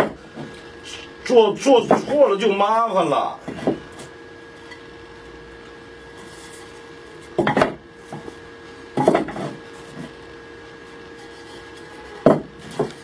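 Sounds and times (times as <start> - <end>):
faint steady hum: 0.0 - 13.0
wooden boards knocking and clattering: 7.4 - 8.3, 9.0 - 10.1, 12.2 - 13.0.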